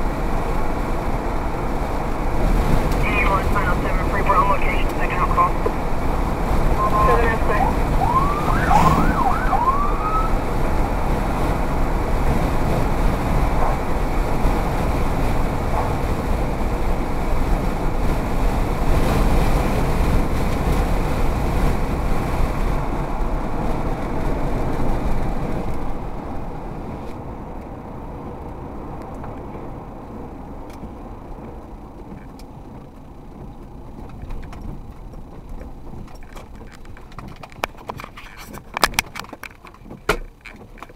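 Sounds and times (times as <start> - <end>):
tyre and engine noise on wet road: 0.0 - 40.9
brief warbling tones: 6.8 - 10.4.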